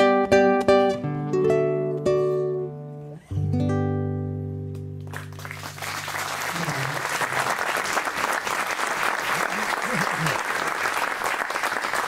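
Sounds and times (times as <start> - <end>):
classical guitar playing: 0.0 - 5.8
audience applause: 5.1 - 12.0.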